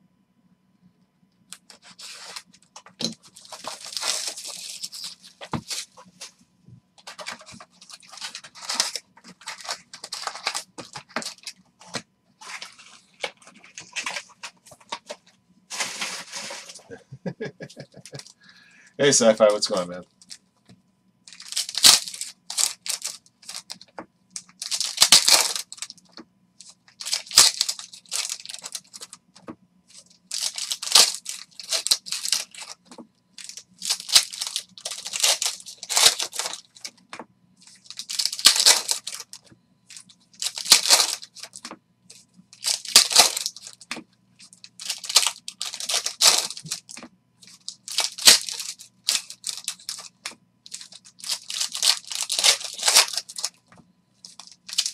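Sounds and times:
foil packs ripping and crinkling: 1.7s - 6.0s, 7.0s - 15.0s, 15.7s - 16.9s, 21.3s - 26.0s, 26.6s - 29.2s, 29.9s - 32.8s, 33.4s - 37.0s, 37.6s - 41.7s, 42.6s - 53.5s, 54.3s - 54.9s.

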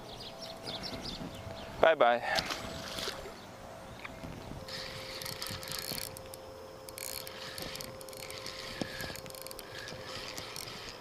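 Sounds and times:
fishing reel gears whirring: 4.6s - 11.0s.

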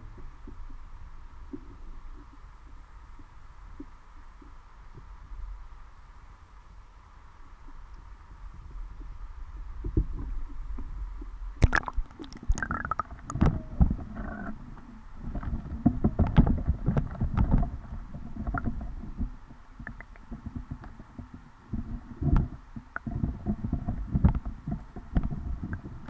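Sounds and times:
muffled underwater rumble: 0.0s - 26.0s
knocks and thumps underwater: 9.8s - 26.0s.

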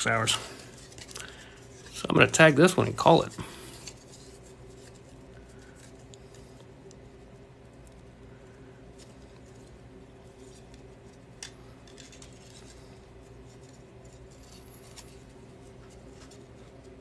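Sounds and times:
twine rustling: 0.0s - 17.0s.

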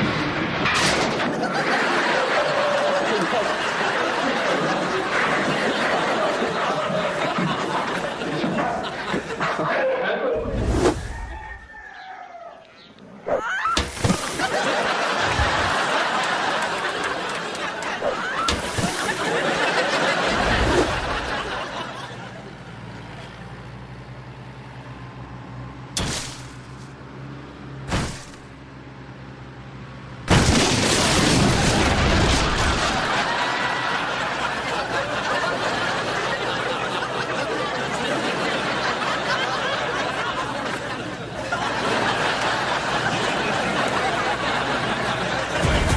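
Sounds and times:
audience laughter: 1.1s - 10.7s, 14.0s - 23.3s, 32.6s - 45.9s
explosion blast: 45.6s - 45.9s.

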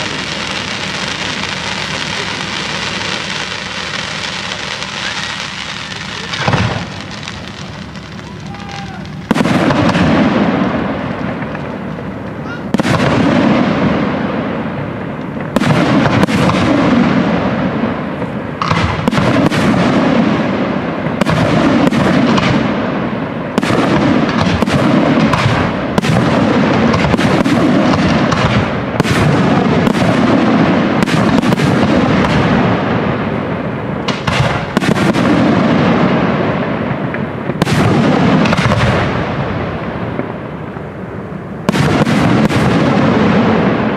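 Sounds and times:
firework shells bursting: 0.0s - 13.9s.

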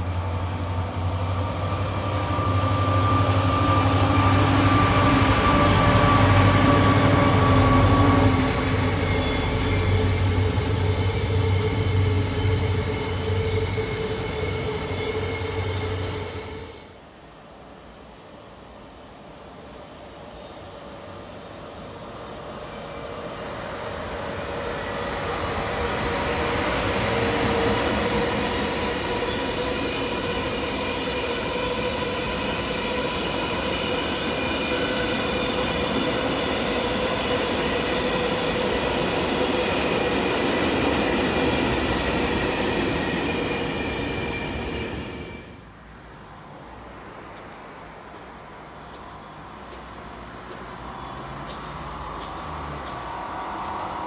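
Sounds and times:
train rumble: 0.0s - 54.0s.

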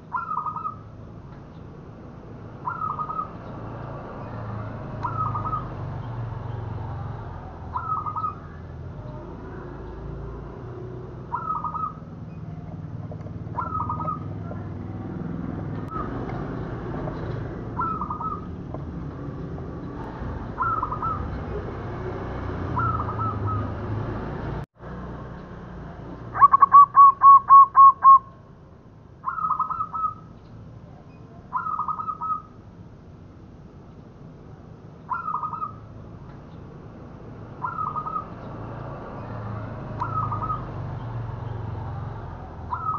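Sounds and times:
dove cooing: 0.1s - 0.8s, 2.6s - 3.4s, 5.0s - 5.7s, 7.6s - 9.7s, 11.3s - 14.9s, 17.7s - 18.6s, 20.5s - 21.6s, 26.4s - 28.2s, 37.6s - 38.3s, 40.0s - 40.7s, 42.7s - 42.9s.

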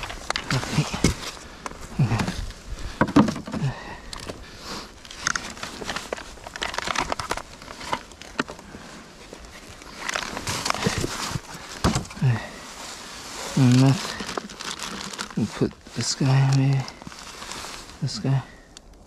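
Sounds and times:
gear rustling and crunching on snow: 0.0s - 19.0s.

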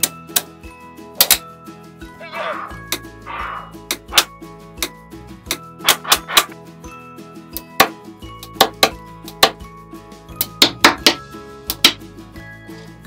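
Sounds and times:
background music with held notes: 0.0s - 13.0s
magnetic blocks clicking together: 1.2s - 1.4s.

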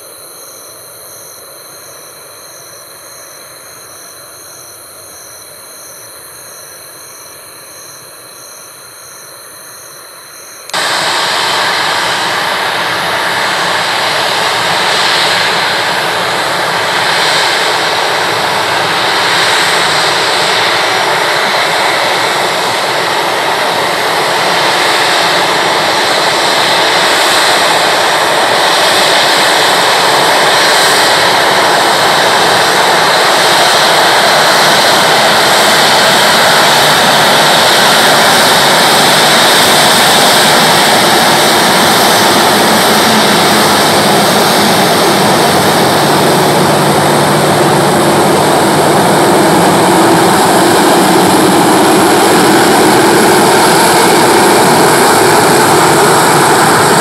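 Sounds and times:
jet engines running: 0.0s - 57.0s.

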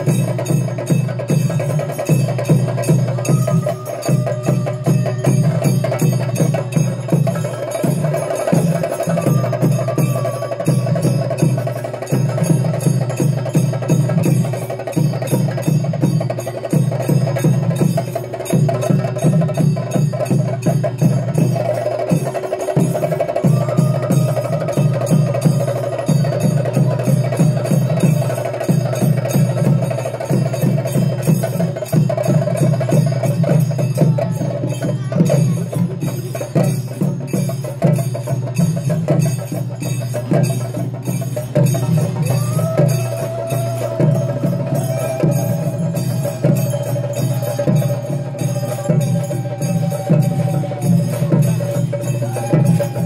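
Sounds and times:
metallic cymbal ring: 0.0s - 53.0s
rapid drum strokes: 0.0s - 53.0s.

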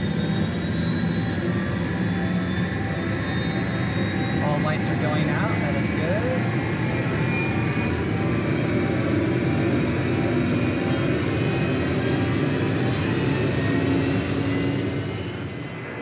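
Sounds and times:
helicopter engine and rotor noise: 0.0s - 16.0s
helicopter turbine whine: 0.0s - 16.0s.

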